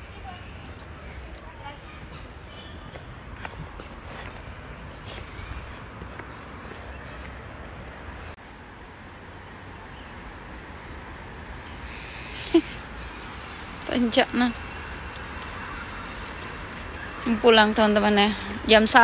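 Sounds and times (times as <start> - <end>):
insects shrilling: 6.7 - 19.0.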